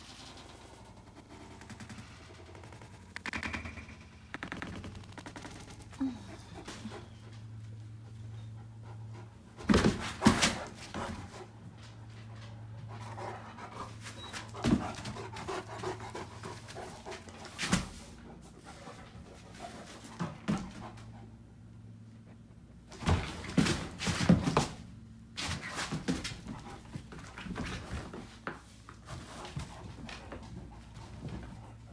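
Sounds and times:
dogs panting: 5.5 - 9.7, 10.5 - 22.7.

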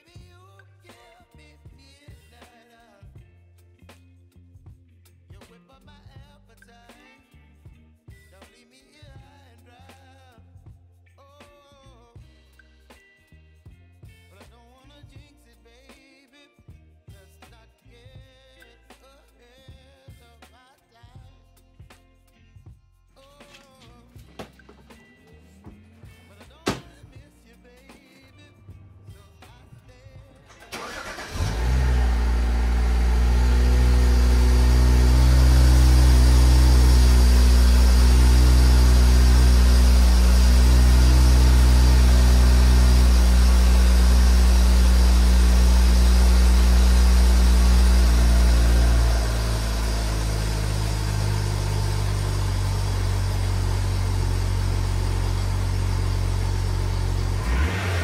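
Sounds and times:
car engine starting and idling: 23.5 - 27.0, 29.6 - 58.0.

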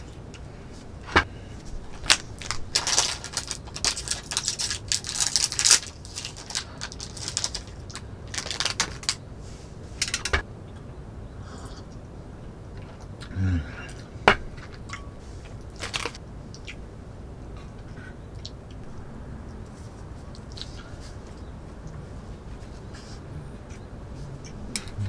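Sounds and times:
plastic wrapper crinkling: 1.9 - 9.2.

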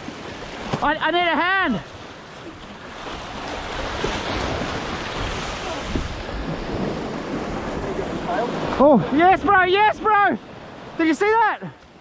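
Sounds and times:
surf washing over rocks: 0.0 - 12.0
wind buffeting microphone: 2.4 - 11.0.

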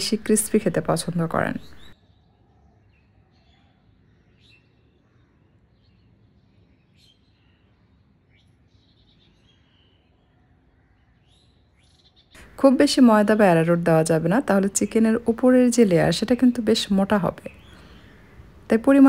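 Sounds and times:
faint bird chirps: 0.0 - 12.5, 16.6 - 19.0.

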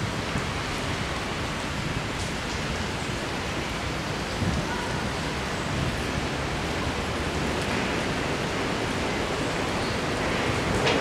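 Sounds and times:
broad outdoor hiss: 0.0 - 11.0.

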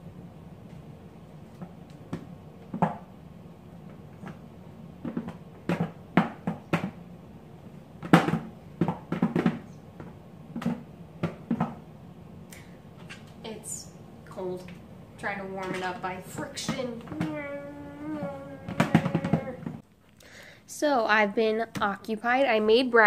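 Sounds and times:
plastic blender jar knocking: 8.0 - 11.8, 18.1 - 19.8.

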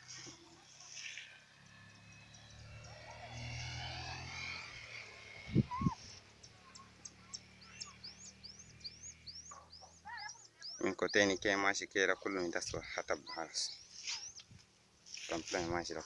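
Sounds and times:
small animal chirping: 5.4 - 11.3.

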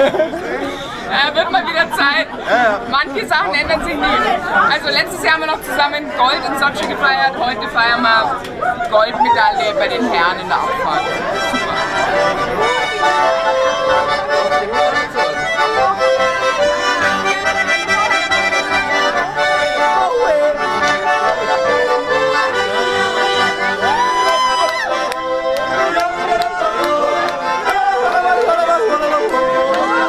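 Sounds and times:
voices chattering: 0.0 - 30.0
button accordions playing: 9.0 - 30.0.

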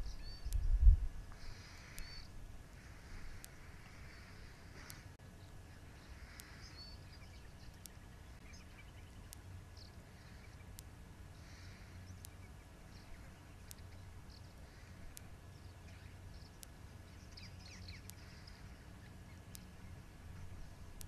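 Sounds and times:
small bird chirps: 0.0 - 2.4, 3.1 - 20.7
steady low hum: 0.0 - 21.0
sharp tick: 0.4 - 2.2, 10.6 - 11.0, 12.1 - 14.4, 15.9 - 19.8.

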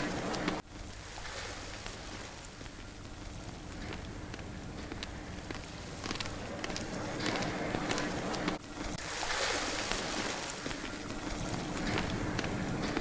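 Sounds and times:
film hiss: 0.0 - 13.0.

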